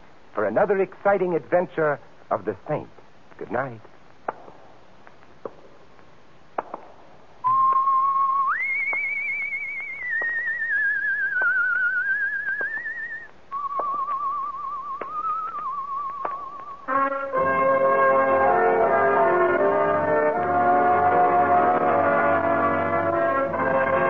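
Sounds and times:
record hiss with clicks: 0.0s - 17.0s
person whistling a tune: 7.4s - 16.8s.

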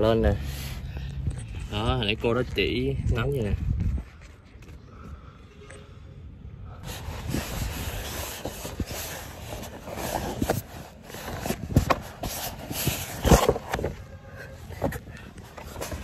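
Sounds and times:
sled scraping over sand: 6.8s - 16.0s.

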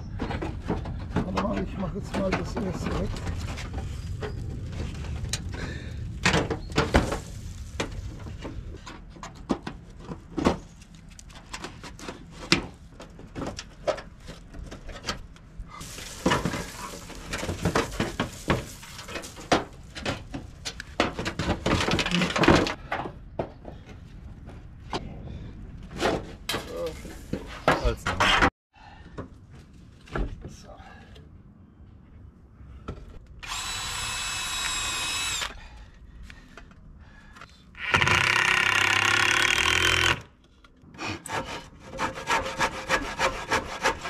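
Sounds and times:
metal scraping and rattling: 11.4s - 22.8s
metal flashing clanking and crinkling: 15.8s - 22.8s.

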